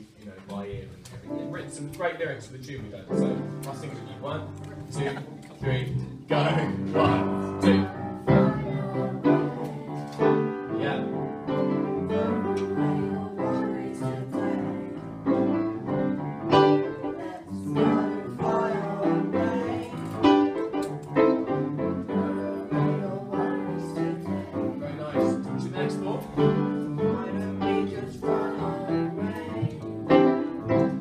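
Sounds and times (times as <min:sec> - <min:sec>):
upright piano: 0:01.2 - 0:31.0
young voices singing: 0:05.0 - 0:31.0.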